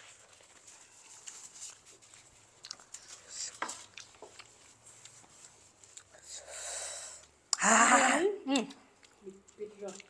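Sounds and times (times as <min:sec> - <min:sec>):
soft chewing: 0:00.0 - 0:06.5, 0:08.5 - 0:10.0.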